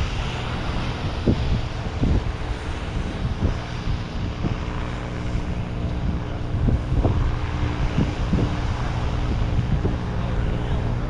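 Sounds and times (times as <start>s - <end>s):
low engine drone: 0.0s - 11.0s
wind buffeting microphone: 0.0s - 11.0s.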